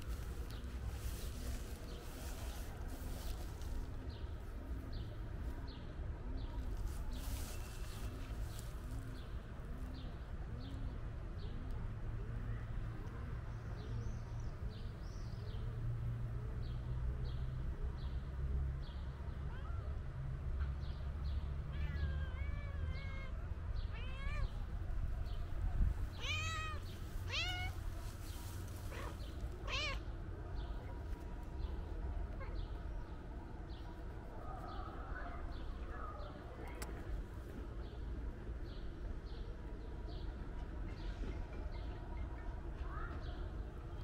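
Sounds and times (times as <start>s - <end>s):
cat meowing: 21.7s - 24.5s, 26.1s - 27.8s, 28.9s - 30.0s.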